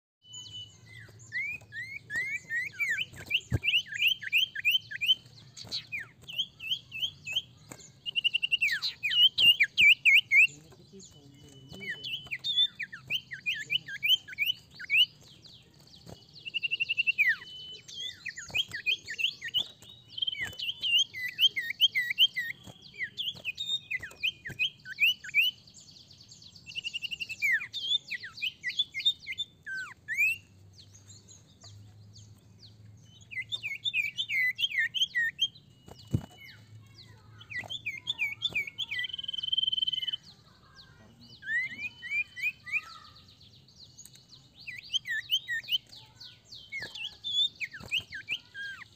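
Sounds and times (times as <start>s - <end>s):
bird whistles: 0.2s - 7.5s, 26.7s - 30.4s, 33.3s - 36.9s, 37.5s - 40.2s, 41.4s - 43.2s, 44.7s - 48.9s
bird chirping: 0.2s - 48.9s.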